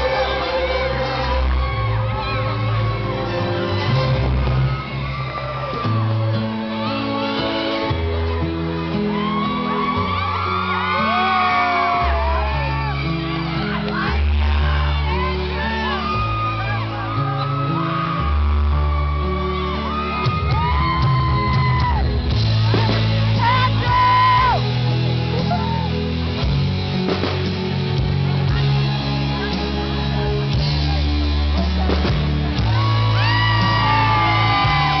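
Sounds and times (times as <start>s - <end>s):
crowd shouting and whooping: 0.0s - 26.4s, 29.4s - 35.0s
loud band music with singing: 0.0s - 35.0s.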